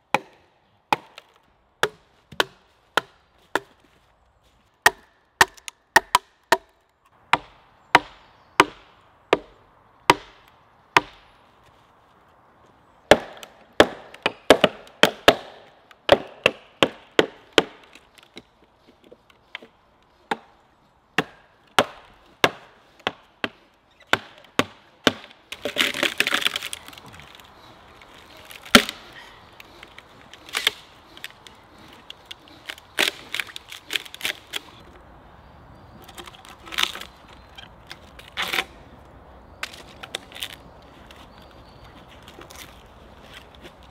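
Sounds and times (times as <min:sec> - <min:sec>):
wood splintering as it splits: 0:13.1 - 0:18.5, 0:21.2 - 0:34.8, 0:36.0 - 0:38.7.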